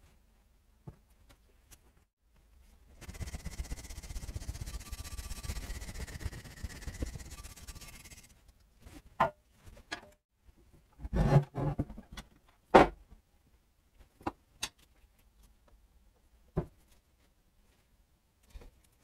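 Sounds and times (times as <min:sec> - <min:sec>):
wire brush scrubbing metal: 0:03.0 - 0:08.4.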